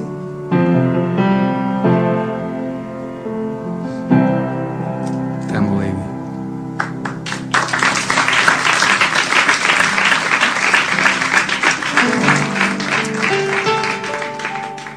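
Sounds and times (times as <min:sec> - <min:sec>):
audience applause: 0:06.8 - 0:14.9
guitar music: 0:10.3 - 0:14.9.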